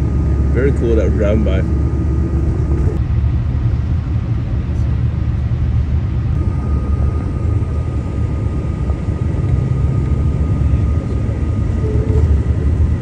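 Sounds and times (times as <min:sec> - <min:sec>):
bus engine and road rumble: 0:00.0 - 0:13.0
faint high whine: 0:06.3 - 0:13.0.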